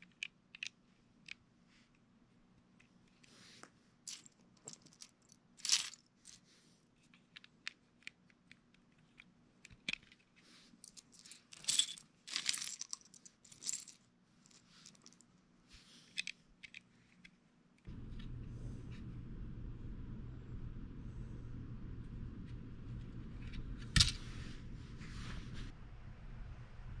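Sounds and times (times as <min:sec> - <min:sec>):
plastic bricks clicking and clattering: 0:00.0 - 0:01.4, 0:07.2 - 0:14.0.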